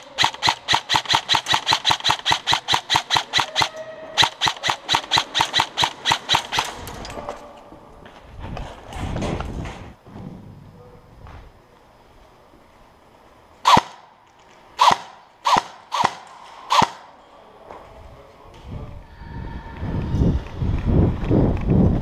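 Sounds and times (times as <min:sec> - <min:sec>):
airsoft rifle firing bursts: 0:00.0 - 0:06.8, 0:13.7 - 0:14.0, 0:14.8 - 0:17.1
rumbling and scuffing movement: 0:06.7 - 0:11.8.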